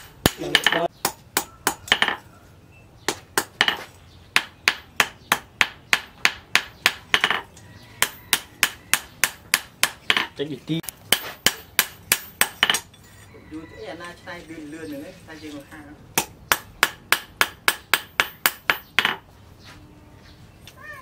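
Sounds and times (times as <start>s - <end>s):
hammer clanging on anvil: 0.0s - 2.2s.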